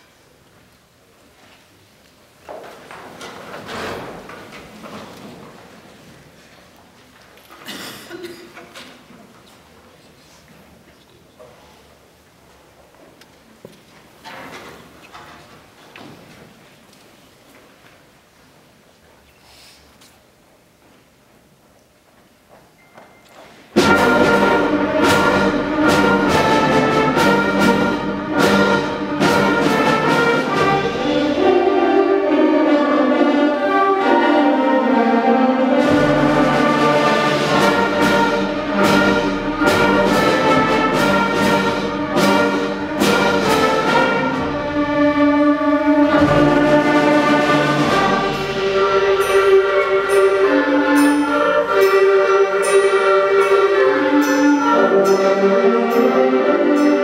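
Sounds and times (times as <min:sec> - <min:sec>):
percussion hits: 0:23.8 - 0:34.2, 0:35.6 - 0:57.0
concert band playing: 0:23.8 - 0:57.0.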